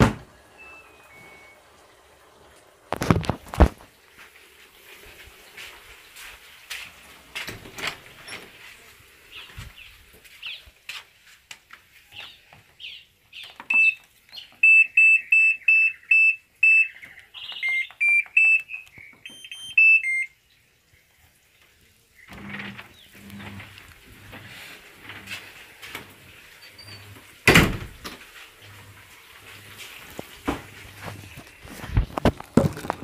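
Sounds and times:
washing machine control panel beeps: 0.6s - 1.6s, 13.6s - 20.4s.

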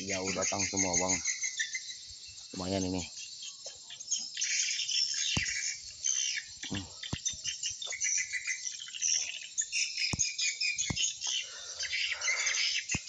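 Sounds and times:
swiftlets twittering: 10.0s - 13.0s
sharp clicks: 10.1s - 11.4s.

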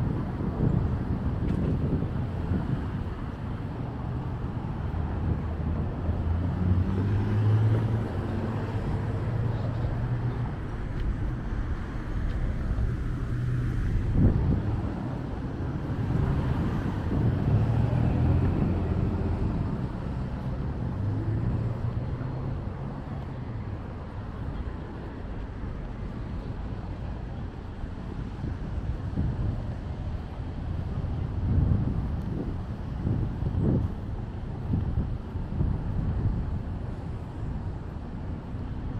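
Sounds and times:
cars passing by: 0.0s - 38.9s.

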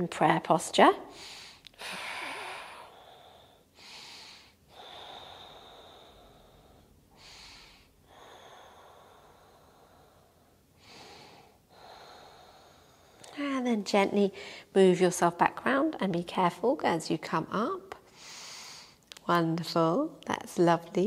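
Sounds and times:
woman breathing deeply: 1.1s - 13.3s, 14.4s - 14.7s, 18.1s - 19.0s.

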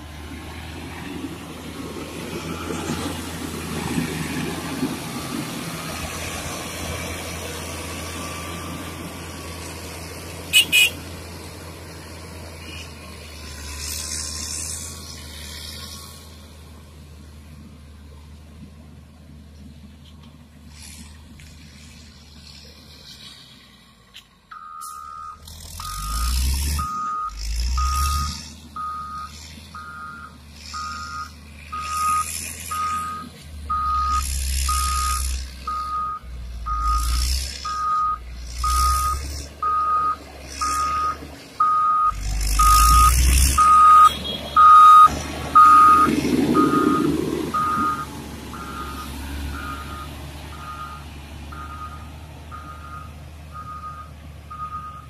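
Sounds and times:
diesel engine rumble: 0.0s - 55.0s
reversing alarm beeping: 24.5s - 55.0s.

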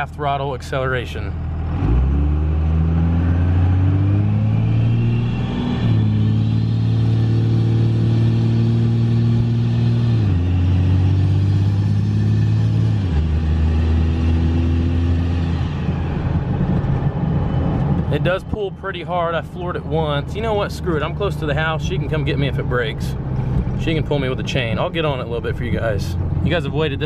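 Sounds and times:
diesel engine accelerating: 0.0s - 27.0s
turbo whistle: 4.4s - 6.4s.

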